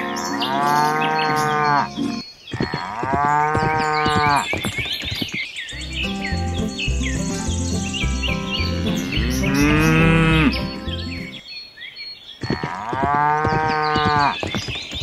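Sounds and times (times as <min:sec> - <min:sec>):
cow mooing: 0:00.4 - 0:02.0, 0:08.6 - 0:10.8
high chirps: 0:03.6 - 0:11.5
low rhythmic background: 0:05.8 - 0:11.4.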